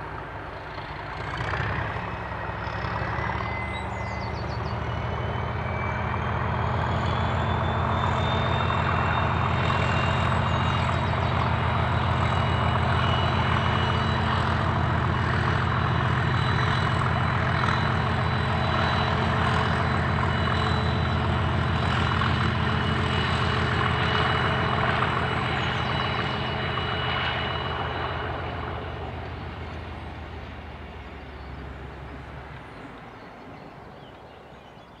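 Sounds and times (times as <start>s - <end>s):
diesel locomotive engine throbbing: 0.0s - 35.0s.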